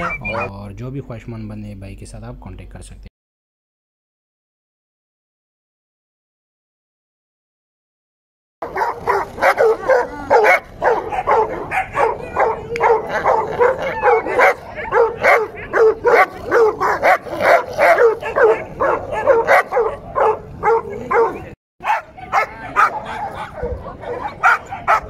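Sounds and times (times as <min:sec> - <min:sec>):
dog barking and yelping: 0:00.0 - 0:00.5, 0:08.6 - 0:25.0.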